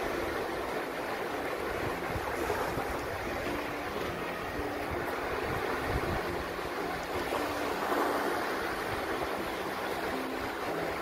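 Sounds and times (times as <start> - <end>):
surf washing over beach: 0.0 - 11.0
water swishing around legs: 0.0 - 11.0.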